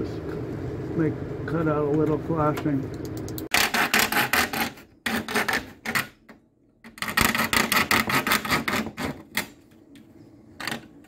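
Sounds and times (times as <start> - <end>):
saw cutting plastic: 3.5 - 6.2, 6.9 - 9.6.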